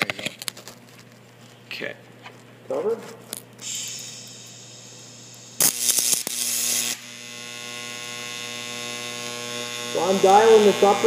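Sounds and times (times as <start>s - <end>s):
welding arc buzzing hum: 3.2s - 11.0s
welding arc crackling: 3.3s - 11.0s
welder hissing: 3.6s - 11.0s.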